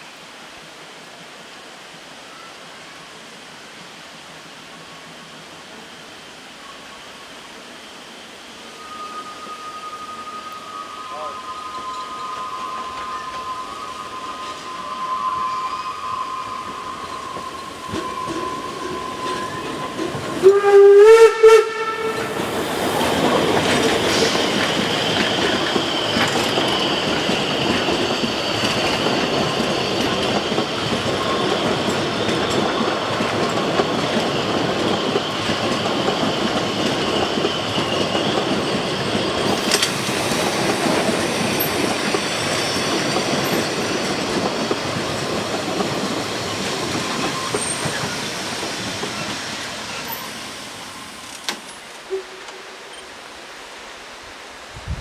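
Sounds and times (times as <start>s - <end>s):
steam locomotive whistle: 8.5s - 23.1s, 52.0s - 53.0s
train wheels clattering on rails: 16.6s - 20.5s, 22.1s - 53.1s.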